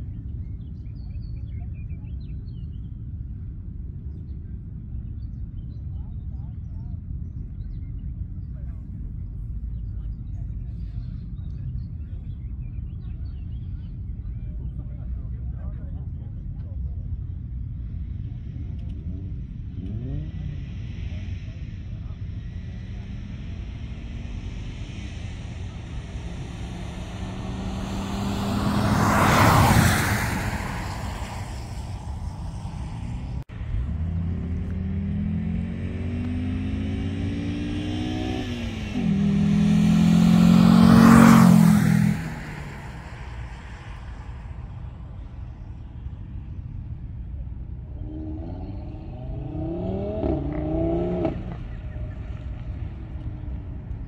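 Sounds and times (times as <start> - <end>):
cars passing at full throttle: 17.5 - 54.0
distant engine shifting gears: 22.4 - 45.4, 48.0 - 54.0.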